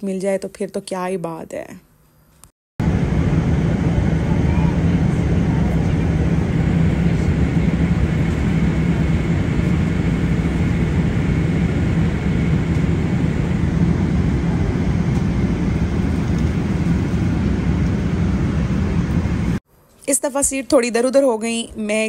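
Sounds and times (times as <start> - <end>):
faint high whine: 2.3 - 19.6
jet airliner cabin noise: 2.8 - 19.6.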